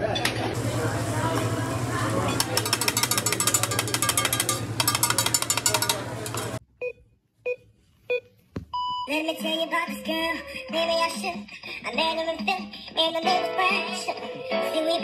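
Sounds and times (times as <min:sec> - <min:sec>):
dishes and utensils clinking: 0:02.3 - 0:06.6
pop song with singing: 0:09.1 - 0:15.0.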